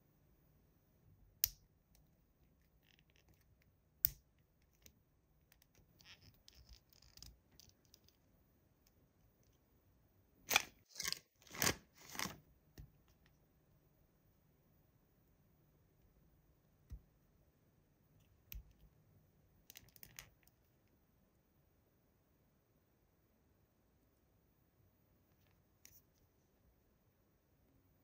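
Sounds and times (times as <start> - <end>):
toy figure rustling: 10.5 - 12.4.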